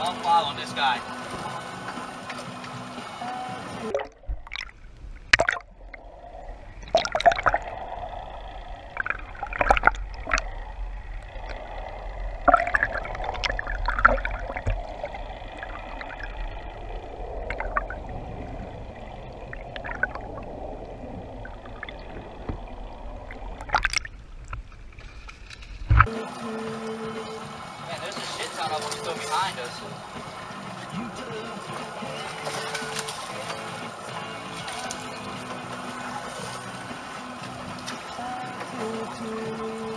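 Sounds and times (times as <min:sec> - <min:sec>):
sharp splashes: 0:00.0 - 0:39.9
water sloshing and gurgling: 0:00.0 - 0:39.9
steady low rumble: 0:03.8 - 0:27.9.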